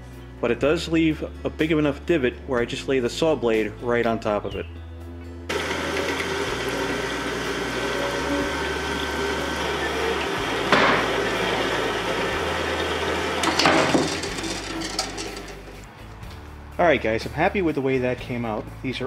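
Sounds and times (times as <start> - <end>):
coolant flowing: 5.5 - 15.6
bandsaw cutting metal: 5.5 - 15.8.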